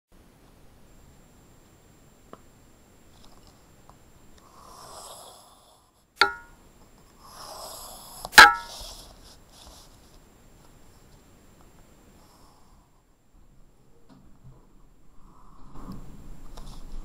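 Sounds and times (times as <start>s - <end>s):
plastic ruler clacking: 6.2s - 6.5s, 8.4s - 8.8s
ruler rustling across paper: 8.3s - 11.2s.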